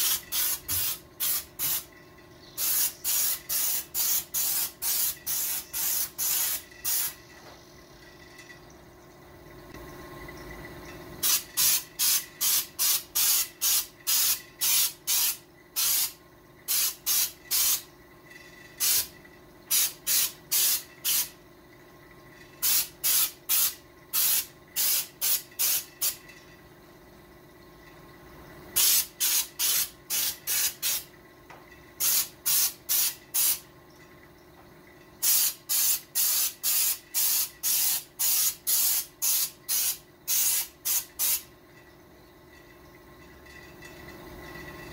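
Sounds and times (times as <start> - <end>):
trigger sprayer squirts: 0.0 - 1.9, 2.6 - 7.2, 11.2 - 17.8.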